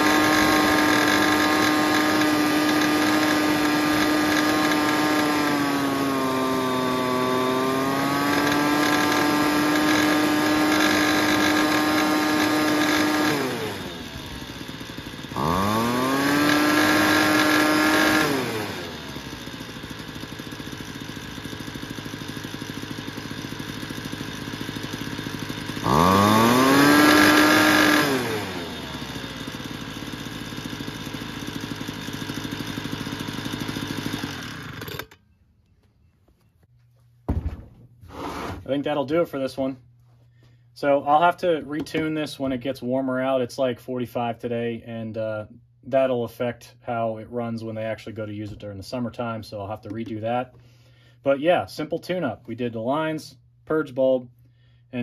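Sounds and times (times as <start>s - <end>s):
leaf blower engine revving: 0.0s - 35.2s, 38.0s - 39.5s.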